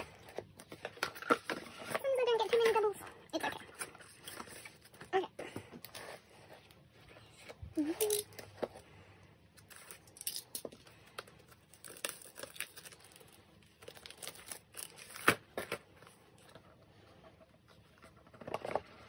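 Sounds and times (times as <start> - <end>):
shrink wrap crinkling: 9.6 - 16.5.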